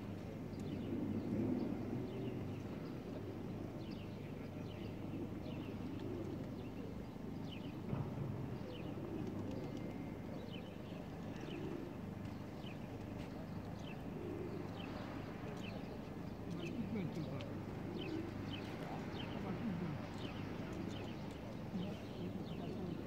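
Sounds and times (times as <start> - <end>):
low background murmur: 0.0 - 23.0
pigeons cooing: 0.0 - 23.0
small birds chirping: 8.7 - 23.0.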